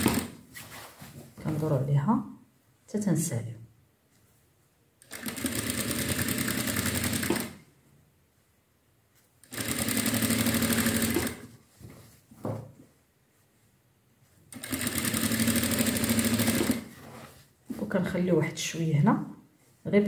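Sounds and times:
sewing machine stitching: 0.0s - 0.4s, 5.0s - 7.6s, 9.4s - 11.5s, 14.5s - 17.0s.

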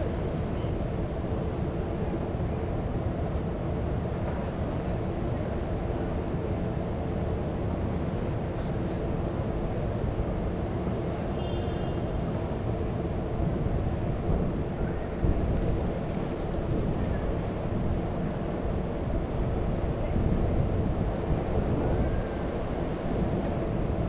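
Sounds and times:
wind buffeting microphone: 13.4s - 24.0s.

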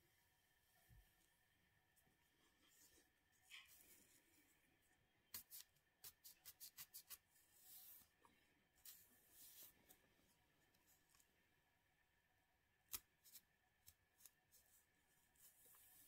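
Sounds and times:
scratching scalp: 5.3s - 8.2s.

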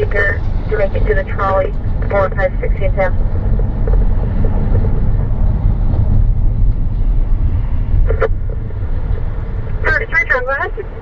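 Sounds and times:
road and engine rumble in vehicle: 0.0s - 11.0s.

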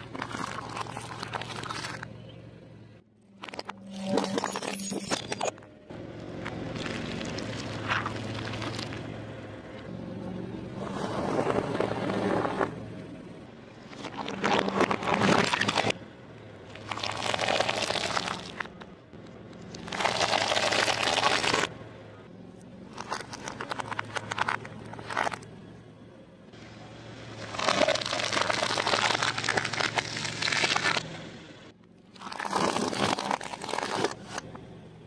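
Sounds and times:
cookies crunching: 0.0s - 2.1s, 16.8s - 18.7s, 19.7s - 21.7s, 22.9s - 25.4s, 27.4s - 31.0s, 32.2s - 34.4s
peanut shells crackling: 27.4s - 31.0s.

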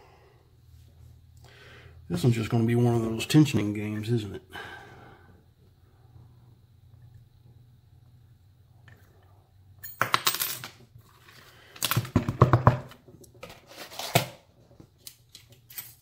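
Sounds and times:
metal lock picks clinking: 15.0s - 16.0s.

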